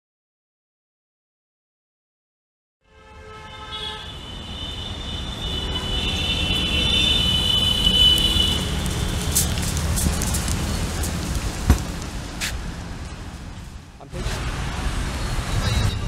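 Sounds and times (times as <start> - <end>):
vehicle horn tooting: 2.8 - 9.5
street traffic rumble: 2.9 - 16.0.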